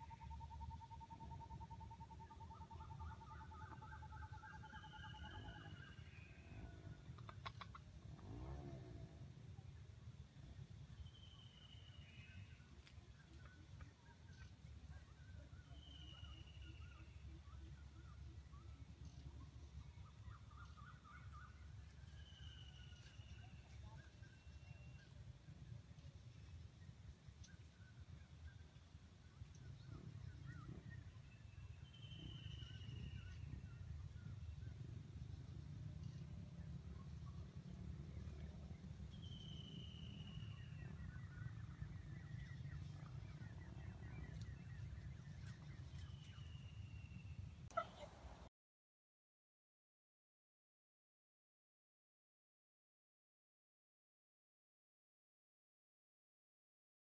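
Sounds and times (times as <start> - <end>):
bird calls: 0.0 - 8.5, 11.0 - 25.2, 27.4 - 35.0, 36.0 - 48.2
low steady rumble: 0.0 - 48.5.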